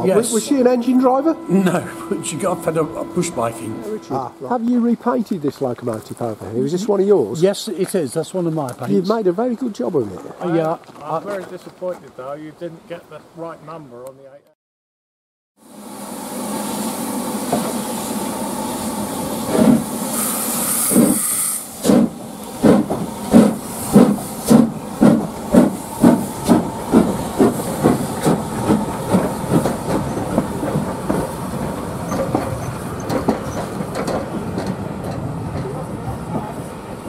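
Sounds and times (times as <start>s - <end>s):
steam locomotive hissing: 0.0s - 5.3s, 15.6s - 37.0s
steam hissing from drain cocks: 15.8s - 33.8s
locomotive exhaust chuffs: 16.1s - 35.7s.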